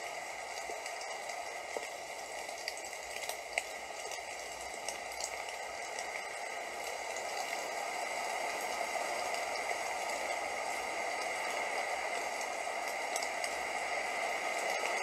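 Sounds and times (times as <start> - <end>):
steady rain: 0.0 - 15.0.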